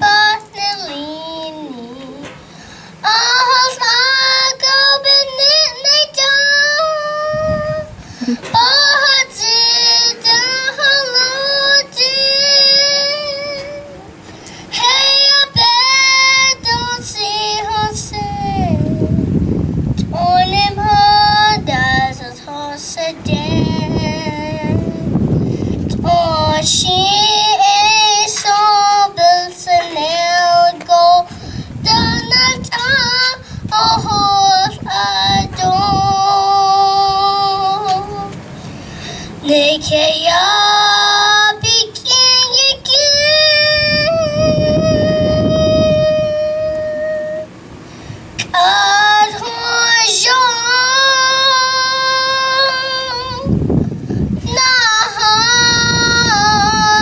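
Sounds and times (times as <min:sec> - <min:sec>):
girl singing: 0:00.0 - 0:47.5, 0:48.4 - 0:57.0
girl breathing: 0:02.4 - 0:03.0, 0:07.9 - 0:08.5, 0:25.4 - 0:25.8, 0:31.3 - 0:31.8, 0:33.4 - 0:33.7, 0:38.6 - 0:39.4, 0:47.8 - 0:48.3.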